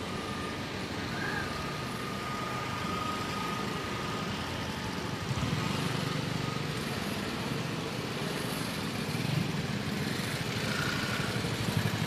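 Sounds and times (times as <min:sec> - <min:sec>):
highway traffic passing: 0:00.0 - 0:12.0
vehicle engine rumble: 0:00.0 - 0:12.0.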